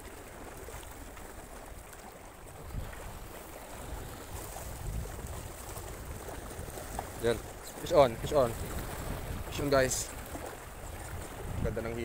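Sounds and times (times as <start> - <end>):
wind noise on microphone: 2.5 - 12.0.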